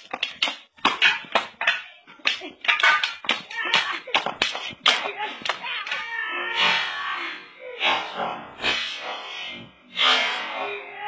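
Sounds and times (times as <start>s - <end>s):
wooden sticks clacking: 0.0s - 6.1s
children shouting: 3.4s - 4.1s, 4.9s - 7.8s.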